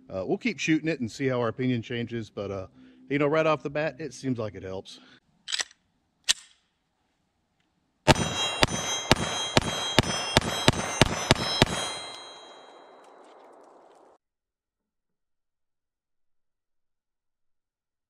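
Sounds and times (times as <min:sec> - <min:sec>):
pistol slide locking back: 0:05.5 - 0:06.6
pistol shots hitting steel: 0:08.1 - 0:14.1.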